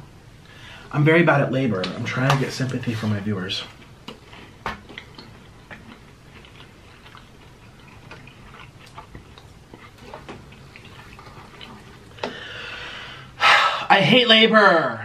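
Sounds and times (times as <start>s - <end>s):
people chewing crispy food: 2.6s - 13.4s.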